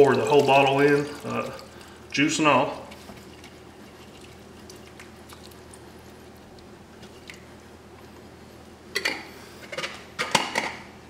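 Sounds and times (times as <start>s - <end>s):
wet food squishing: 0.0s - 7.6s.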